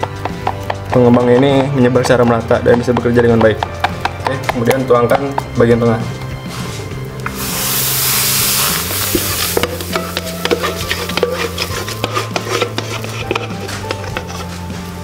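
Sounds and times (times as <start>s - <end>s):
background music with bass: 0.0s - 15.0s
batter sizzling in hot pan: 7.2s - 15.0s.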